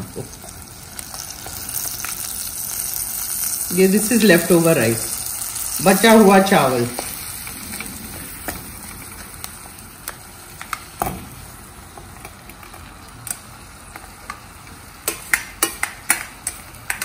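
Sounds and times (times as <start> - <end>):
spices sizzling in oil: 0.0 - 17.0.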